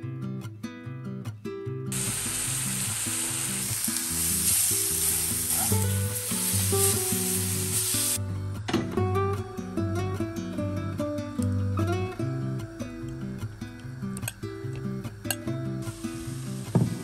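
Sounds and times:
acoustic guitar music: 0.0 - 17.0
food sizzling in a frying pan: 1.9 - 8.2, 15.8 - 17.0.

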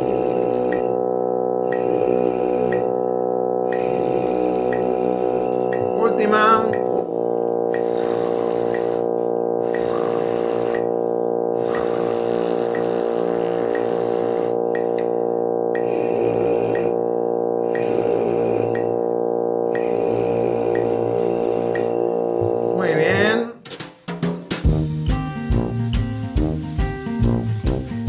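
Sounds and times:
brass mouthpiece buzzing: 0.0 - 23.4
sustained drone: 0.0 - 23.4
metronome ticking: 0.6 - 1.0, 1.6 - 3.0, 3.6 - 7.0, 11.6 - 15.1, 15.7 - 17.0, 19.7 - 22.0.

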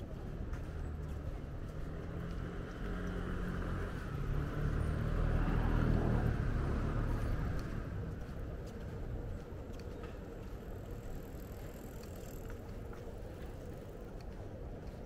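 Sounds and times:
motor vehicle passing: 0.0 - 9.8.

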